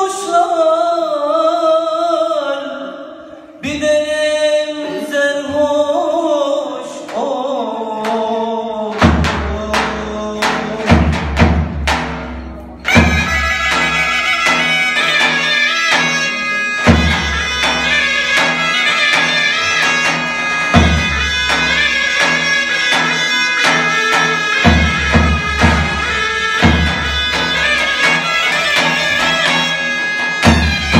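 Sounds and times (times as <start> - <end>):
person singing: 0.0 - 11.3
drum beating: 8.9 - 30.9
loud reed pipes playing: 12.6 - 30.9.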